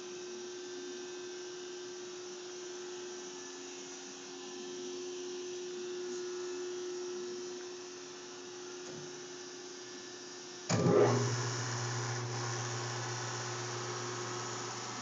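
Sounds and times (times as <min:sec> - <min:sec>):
lathe humming: 0:10.7 - 0:15.0.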